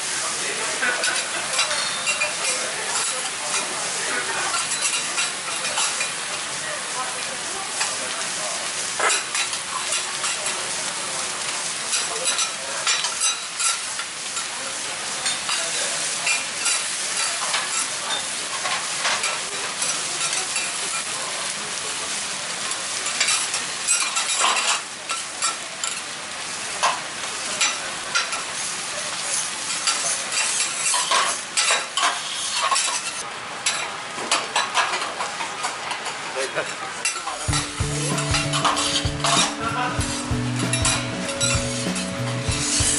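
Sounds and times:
food sizzling on griddle: 0.0 - 42.9.

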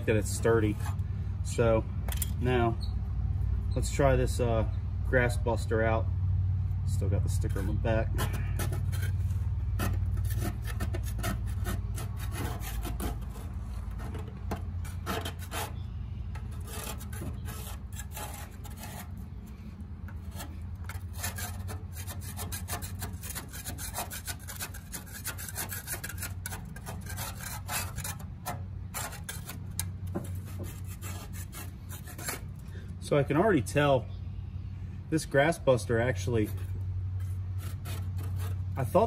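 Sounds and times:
scraper scraping grass off mower deck: 7.2 - 32.6, 36.2 - 39.0.

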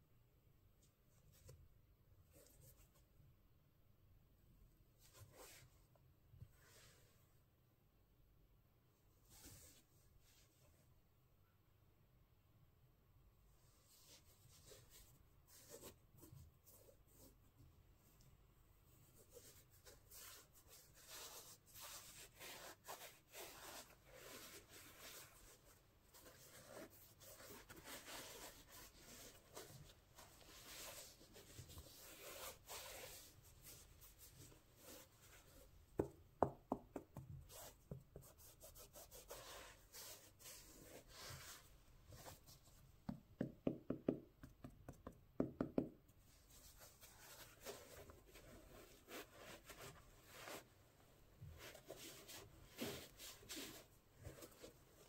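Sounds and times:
gloved hands rubbing a sneaker: 19.0 - 43.2, 46.2 - 55.0.

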